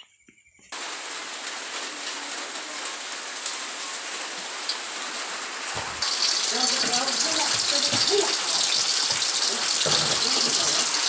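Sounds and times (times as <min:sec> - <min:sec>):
steady rain falling: 0:00.7 - 0:11.0.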